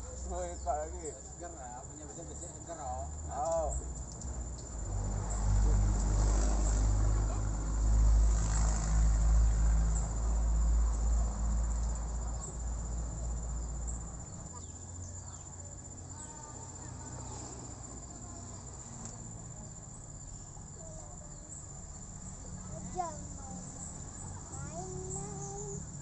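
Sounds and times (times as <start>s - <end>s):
crickets chirring: 0.0s - 26.0s
low engine rumble: 0.0s - 26.0s.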